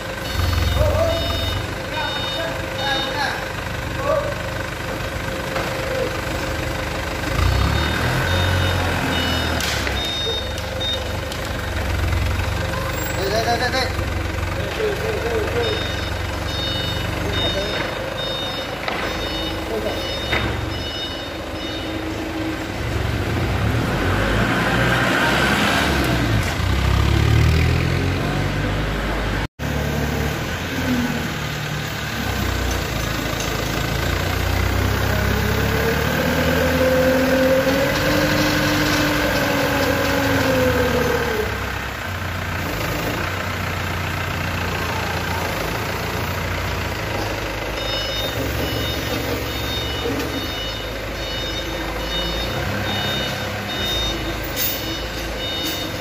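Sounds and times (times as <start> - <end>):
forklift engine running: 0.0 - 56.0
reversing beeper: 0.2 - 3.4, 7.4 - 11.2, 15.1 - 23.2, 47.6 - 56.0.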